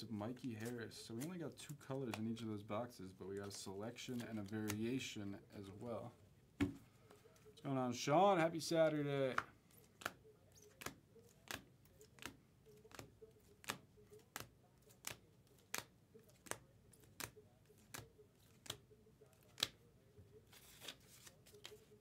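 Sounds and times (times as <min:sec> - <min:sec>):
cards flicked with faint clicks: 0:09.3 - 0:18.8, 0:19.4 - 0:19.8.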